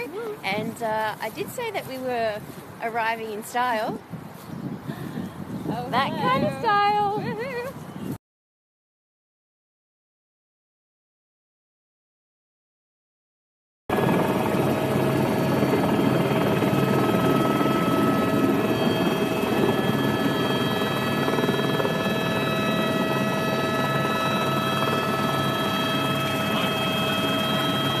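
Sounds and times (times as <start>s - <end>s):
helicopter engine and rotor: 13.9s - 28.0s.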